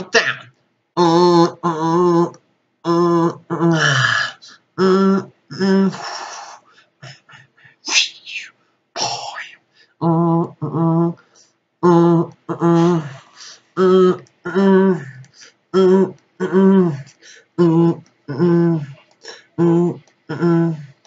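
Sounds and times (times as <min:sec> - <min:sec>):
man making vocal sound effects: 0:00.0 - 0:21.0.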